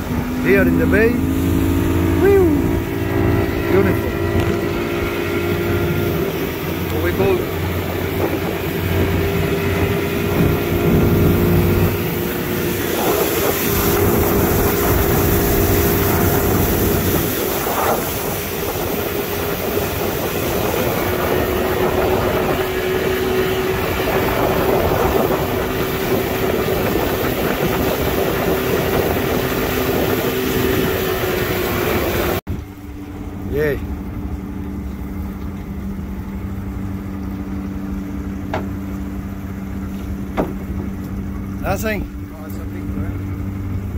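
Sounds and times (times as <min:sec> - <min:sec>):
wind noise: 0:00.0 - 0:32.8
motorboat engine drone: 0:00.0 - 0:43.9
water rushing: 0:00.0 - 0:43.9.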